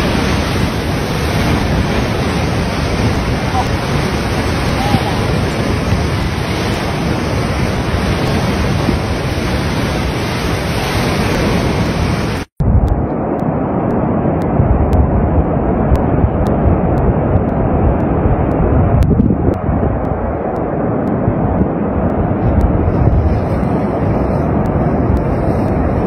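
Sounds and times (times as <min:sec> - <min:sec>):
waves crashing against seawall: 0:00.0 - 0:12.5
wind: 0:00.0 - 0:26.0
wind rumble on microphone: 0:00.0 - 0:26.0.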